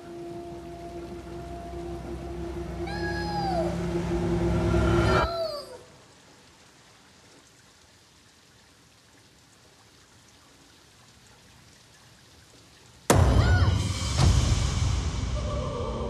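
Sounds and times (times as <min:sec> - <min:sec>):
falling tone: 0:00.0 - 0:05.6
steady rain: 0:00.0 - 0:16.0
rainwater running in gutter: 0:05.5 - 0:13.4.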